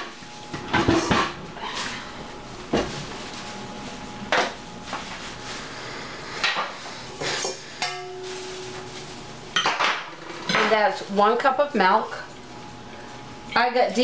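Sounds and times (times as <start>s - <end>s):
kitchen utensils and dishes clinking: 0.0s - 2.0s, 6.4s - 14.0s
short ringing tone: 7.9s - 9.0s.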